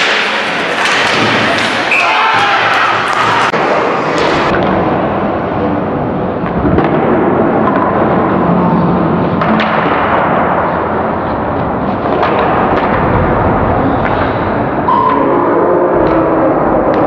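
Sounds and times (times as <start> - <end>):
hockey sticks and puck clacking: 0.0 - 4.8, 6.4 - 8.4, 9.3 - 10.8, 11.6 - 13.3
arena noise: 0.0 - 17.0.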